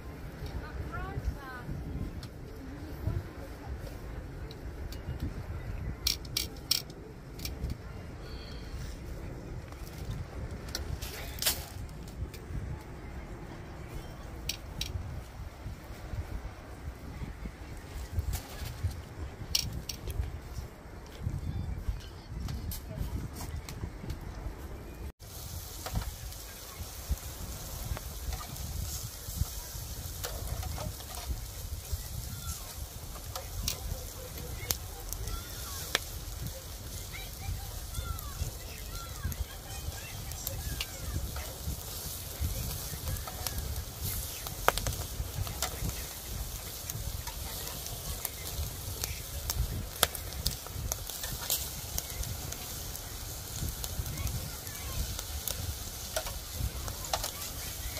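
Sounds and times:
wind rumble on microphone: 0:00.0 - 0:57.9
meat sizzling on a grill: 0:25.2 - 0:57.9.

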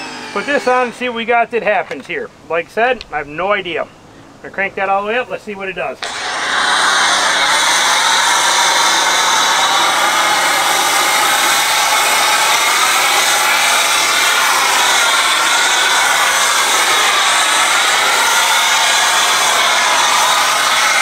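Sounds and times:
foam cannon spraying hiss: 0:06.0 - 0:21.0.

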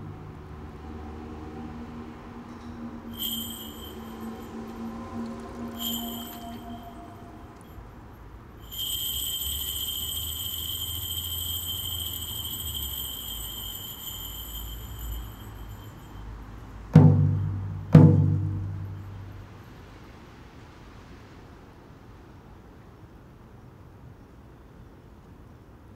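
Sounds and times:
high steady ringing tone: 0:03.0 - 0:20.4
deep struck drum beats: 0:16.9 - 0:19.2.

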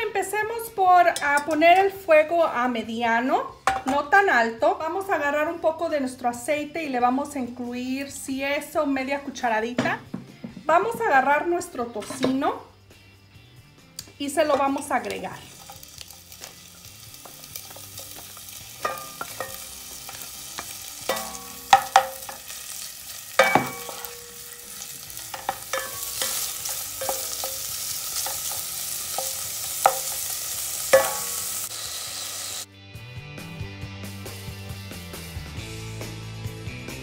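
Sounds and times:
bacon sizzling in a pot: 0:14.0 - 0:32.7
utensil knocking against pot: 0:17.7 - 0:22.4, 0:23.4 - 0:24.4, 0:25.2 - 0:27.6.

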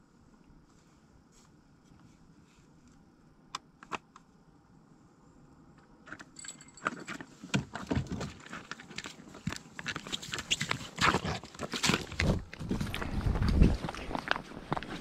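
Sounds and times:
clatter of knocks and rustling: 0:06.1 - 0:12.9.

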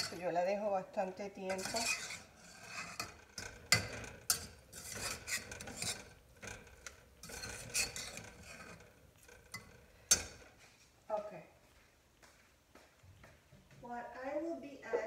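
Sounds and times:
metal spoon stirring in saucepan: 0:00.0 - 0:10.7
spoon knocking on pot: 0:03.0 - 0:08.2.

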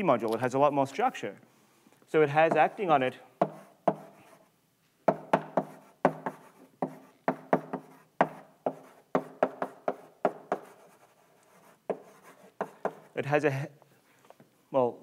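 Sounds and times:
chalk tapping on a blackboard: 0:02.4 - 0:04.5, 0:05.1 - 0:13.2.

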